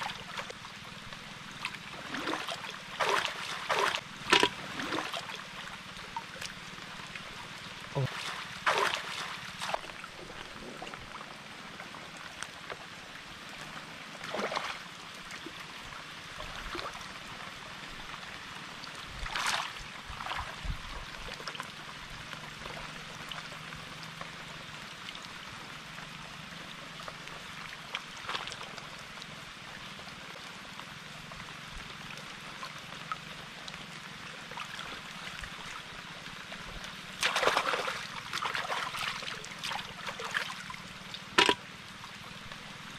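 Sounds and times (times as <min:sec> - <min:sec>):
muddy water splashing: 0:00.0 - 0:12.0, 0:14.2 - 0:15.7, 0:19.2 - 0:20.6, 0:34.2 - 0:42.9.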